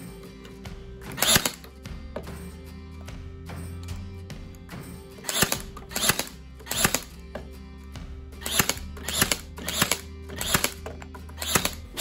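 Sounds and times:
background music: 0.0 - 12.0
nail gun firing: 1.1 - 1.7, 5.2 - 7.2, 8.4 - 12.0.

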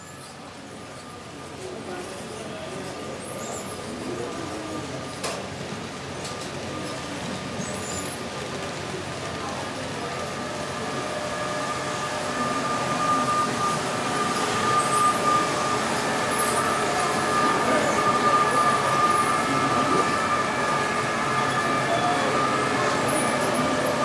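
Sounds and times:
exhibition hall noise: 0.0 - 24.0
model train motors whining: 0.0 - 24.0
faint high squeaks: 6.3 - 24.0.

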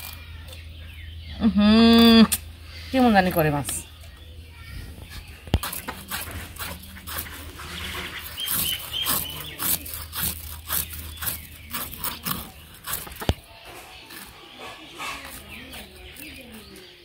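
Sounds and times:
fish scales scraped on blade: 5.6 - 16.9.

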